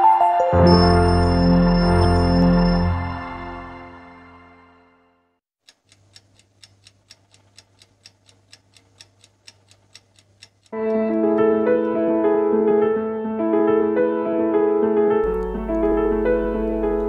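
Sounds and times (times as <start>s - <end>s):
soft ambient music: 0.0s - 5.1s, 15.2s - 17.0s
piano music: 0.0s - 5.2s, 10.8s - 17.0s
clock ticking: 5.6s - 10.8s, 15.2s - 17.0s
low hum: 15.3s - 17.0s.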